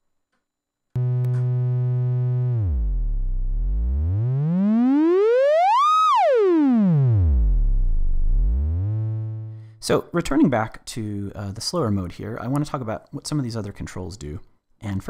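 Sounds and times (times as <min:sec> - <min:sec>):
synthesizer oscillator tone sweeping: 0:01.0 - 0:09.6.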